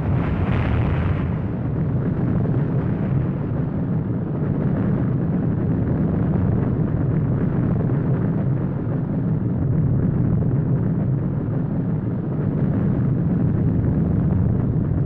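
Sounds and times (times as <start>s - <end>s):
explosion low rumble: 0.0s - 15.0s.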